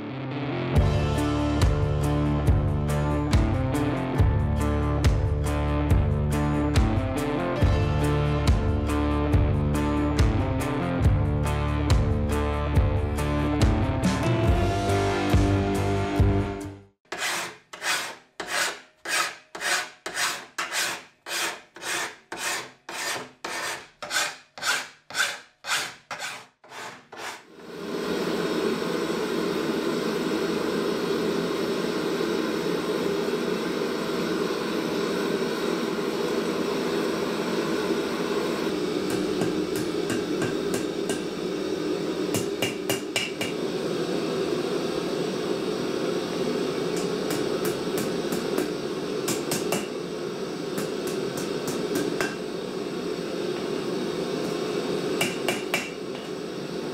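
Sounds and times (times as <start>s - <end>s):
file rasping on steel: 17.1s - 27.5s
gas forge burner roaring: 17.2s - 56.9s.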